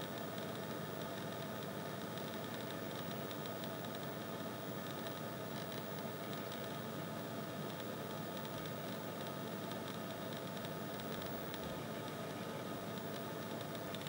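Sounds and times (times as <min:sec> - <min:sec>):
faint constant tones: 0:00.0 - 0:14.0
recording hiss and hum: 0:00.0 - 0:14.0.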